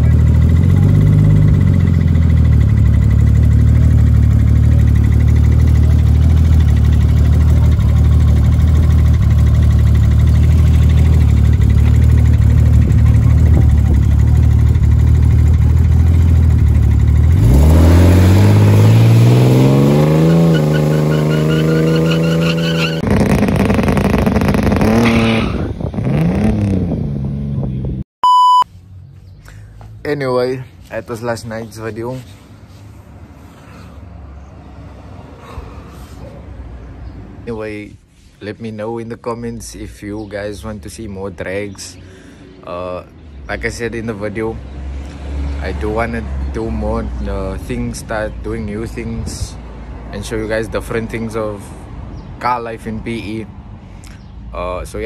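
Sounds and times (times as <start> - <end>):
drag car engine revving: 0.0 - 27.7
short beep: 28.2 - 28.7.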